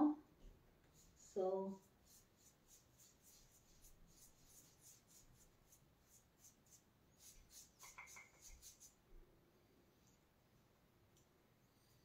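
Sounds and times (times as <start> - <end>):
paintbrush swishing on wall: 0.8 - 9.1.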